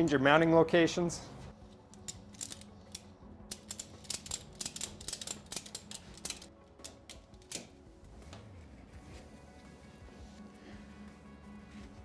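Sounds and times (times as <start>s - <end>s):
ratchet strap clicking: 1.9s - 7.7s.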